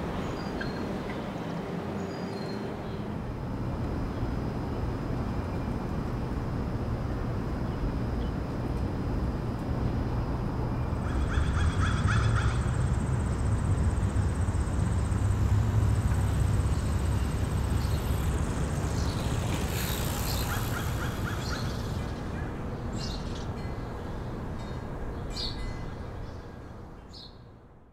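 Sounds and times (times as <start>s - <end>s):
distant traffic rumble: 0.0s - 27.0s
birds calling: 10.8s - 23.7s.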